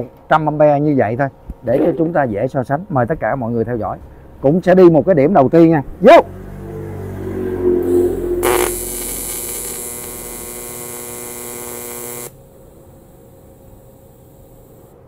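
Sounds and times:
welding arc buzzing: 7.8s - 15.0s.

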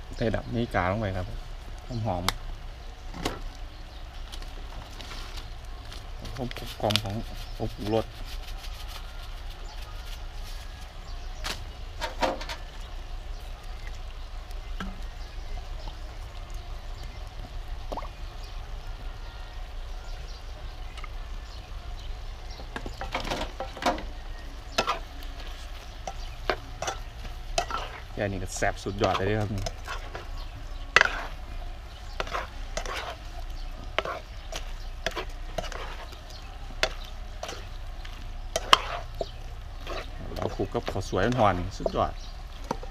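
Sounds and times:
stir-fry sizzling in a pan: 0.0s - 42.9s
spatula clacking and scraping wok: 22.6s - 42.9s.

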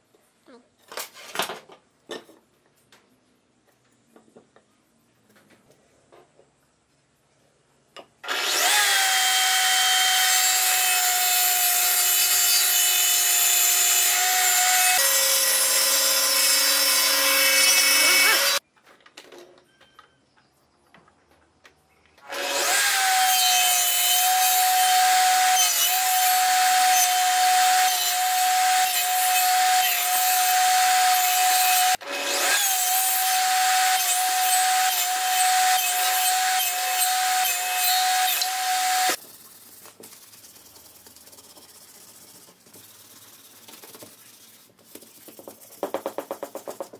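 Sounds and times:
saw cutting wooden board: 8.2s - 18.6s, 22.2s - 39.2s
table saw whining: 8.2s - 18.6s, 22.2s - 39.2s.

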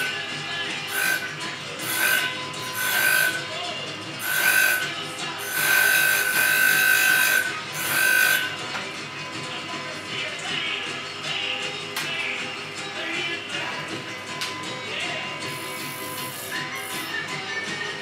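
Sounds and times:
grinder whining and grinding metal: 0.0s - 8.8s, 15.3s - 18.0s
music: 0.0s - 18.0s.

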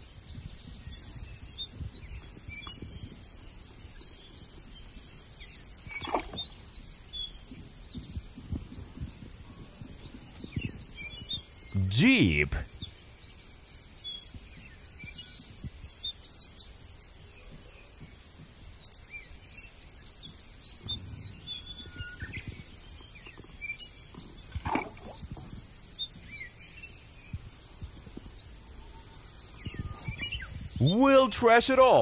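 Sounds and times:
small birds chirping: 0.0s - 11.7s, 12.3s - 32.0s
soft low thumps: 20.8s - 22.7s.

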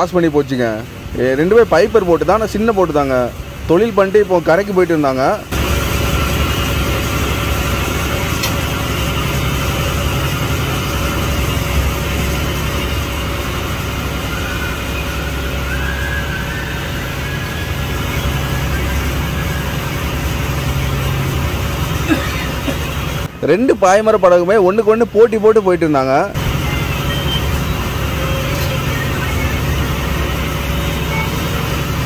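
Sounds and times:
boat engine humming: 0.0s - 32.0s.

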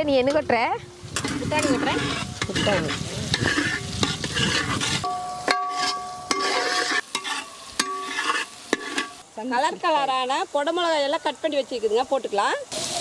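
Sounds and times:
vegetables sizzling in oil: 0.0s - 13.0s
metal spatula scraping pan: 1.1s - 9.2s.

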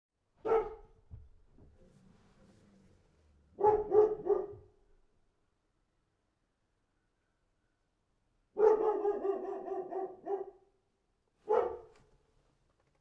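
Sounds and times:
small dog barking: 0.4s - 1.0s, 3.6s - 4.7s, 8.6s - 10.7s, 11.4s - 12.0s.

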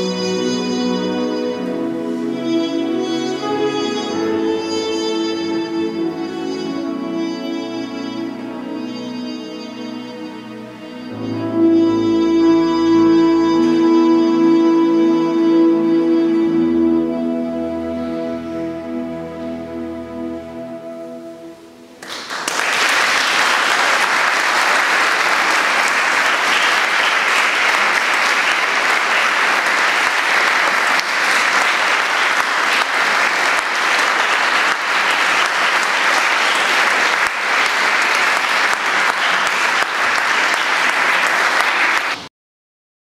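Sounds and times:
held music chord: 0.0s - 22.0s
audience applause: 22.0s - 42.3s.

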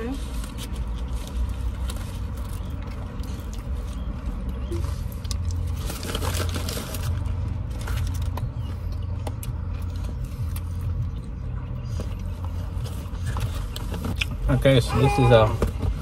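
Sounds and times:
car cabin rumble: 0.0s - 16.0s
paper food wrapper crackling: 0.2s - 8.9s.

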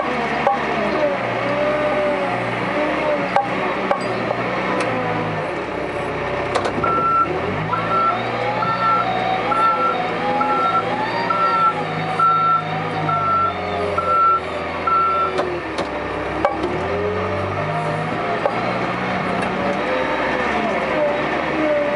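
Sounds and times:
diesel engine running: 0.0s - 21.9s
reversing alarm beeping: 6.8s - 15.4s.

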